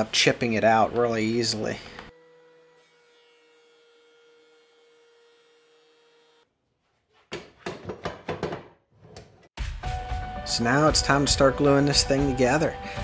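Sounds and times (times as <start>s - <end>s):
boards knocking on metal clamps: 7.4s - 9.3s.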